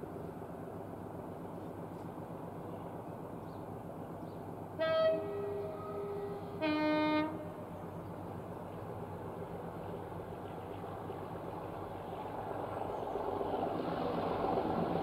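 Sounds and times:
distant two-tone locomotive horn: 4.8 - 7.7.

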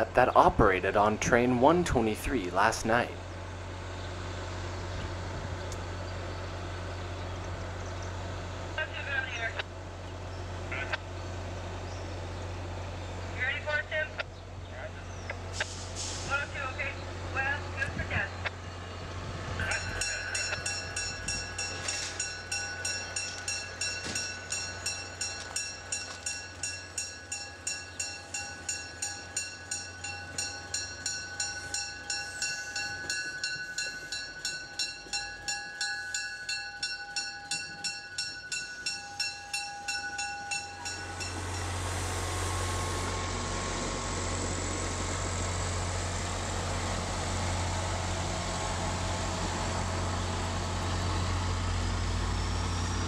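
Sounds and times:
diesel locomotive engine running: 0.0 - 53.0
train warning bell ringing: 19.6 - 42.2.

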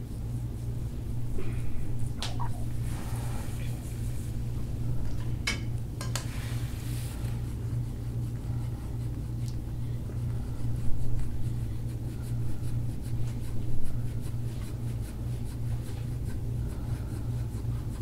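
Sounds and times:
steady low hum: 0.0 - 18.0
hands rubbing skin: 2.0 - 4.4.

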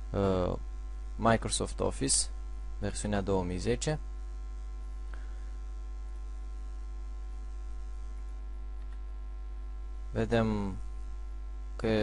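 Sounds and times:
electrical mains hum: 0.0 - 12.0
mouse click: 8.8 - 9.1.

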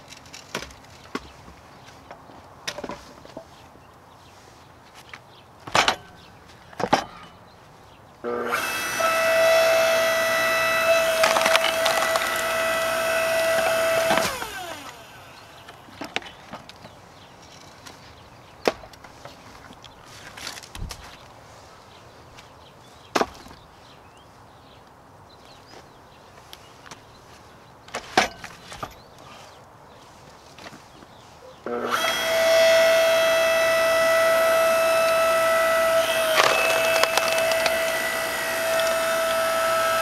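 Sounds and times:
hydraulic pump motor whining: 8.3 - 15.8, 31.7 - 40.0
wood cracking and splintering: 10.6 - 15.0, 35.0 - 40.0.

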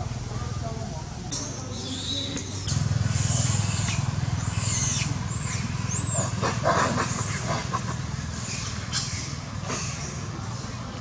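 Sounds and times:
monkey screaming: 1.8 - 10.2.

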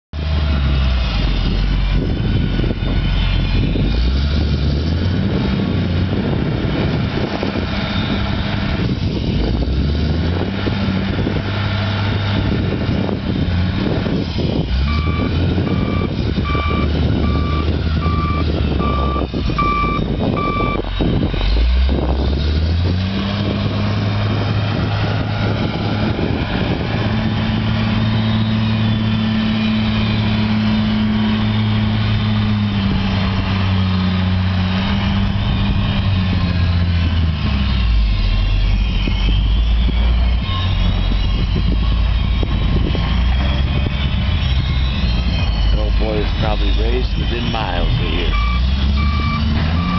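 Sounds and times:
diesel engine revving: 0.2 - 49.9
backup alarm beeping: 14.9 - 20.8, 47.4 - 49.9.

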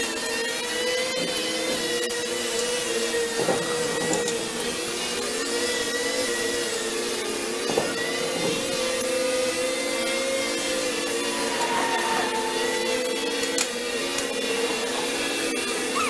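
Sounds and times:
brush cutter engine whining: 0.0 - 16.0
noisy bursts: 11.1 - 13.6.

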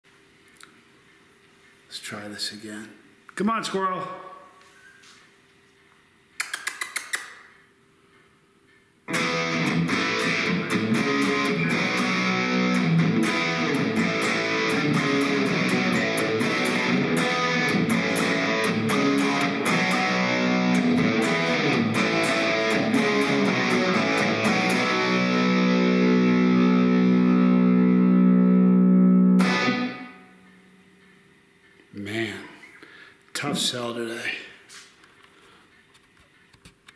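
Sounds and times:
distorted electric guitar rock riff: 9.1 - 30.4.

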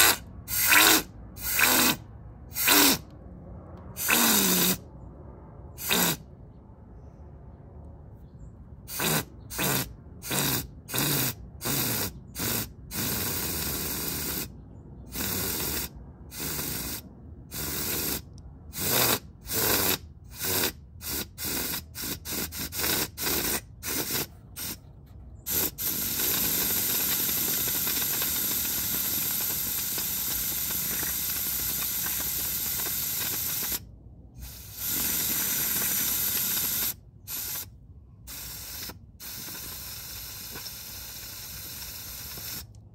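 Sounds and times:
compressed air blow gun hissing: 0.0 - 3.0, 4.0 - 4.8, 5.8 - 6.2, 8.9 - 14.5, 15.1 - 24.8, 25.4 - 33.8, 34.4 - 37.7, 38.3 - 42.7.

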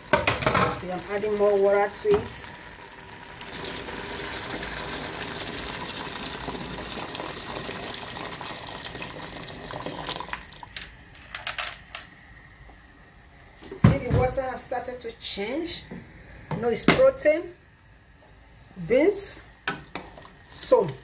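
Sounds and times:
water pouring into a pot: 0.8 - 10.9.

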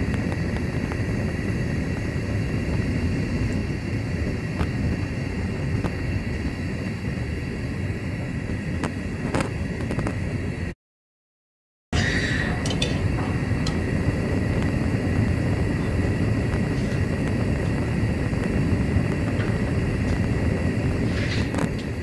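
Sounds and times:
rumbling factory noise: 0.0 - 10.7, 12.0 - 22.0
thin high whine: 12.0 - 22.0.

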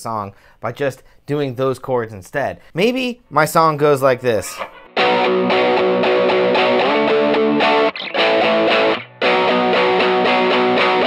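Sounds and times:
overdriven electric guitar strumming: 4.6 - 11.0.

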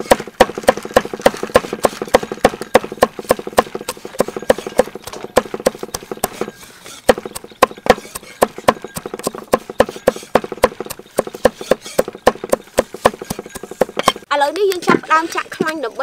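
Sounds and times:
cleaver chopping on wooden block: 0.0 - 14.2.

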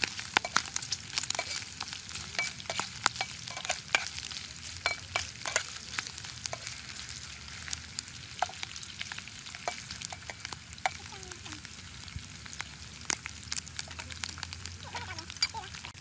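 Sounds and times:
pork sizzling in a pan: 0.0 - 16.0
sharp crackling pops: 0.0 - 16.0
metal spatula scraping pan: 0.4 - 5.8.

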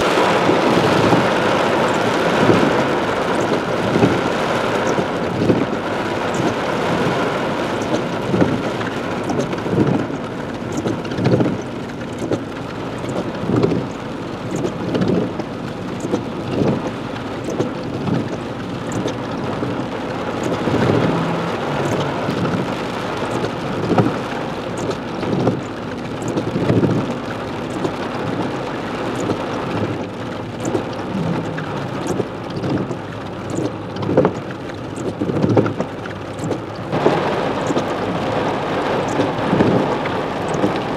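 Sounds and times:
heavy rain on car roof: 0.0 - 40.9
windshield wipers thumping: 0.0 - 40.9.

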